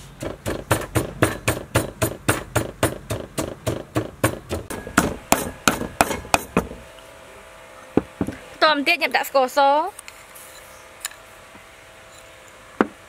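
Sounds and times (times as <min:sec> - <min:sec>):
wooden pestle pounding in mortar: 0:00.2 - 0:06.8.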